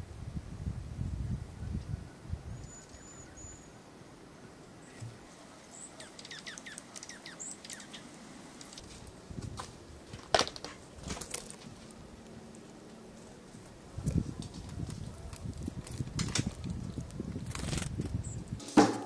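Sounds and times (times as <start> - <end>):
small songbirds chirping: 1.2 - 9.5, 11.5 - 18.6.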